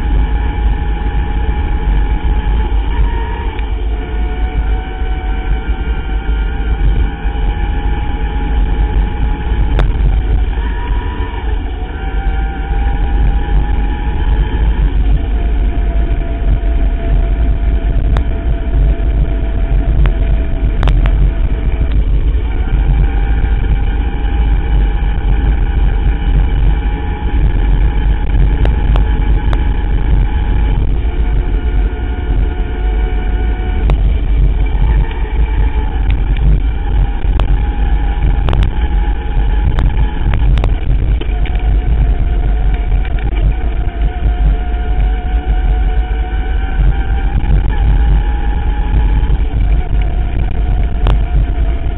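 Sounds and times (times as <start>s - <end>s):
electric motor whine: 0.0s - 51.9s
wind and tyres rumbling: 0.0s - 51.9s
bike clicks and rattles: 33.3s - 51.9s.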